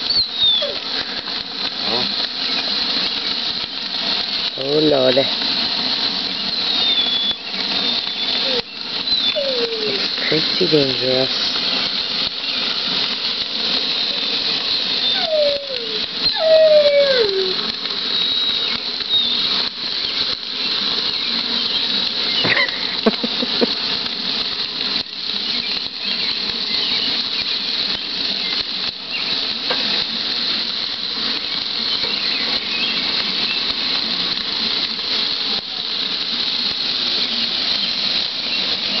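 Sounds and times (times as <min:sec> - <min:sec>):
meat sizzling on a grill: 0:00.0 - 0:39.0
short high squeal: 0:06.5 - 0:10.1, 0:15.0 - 0:19.6.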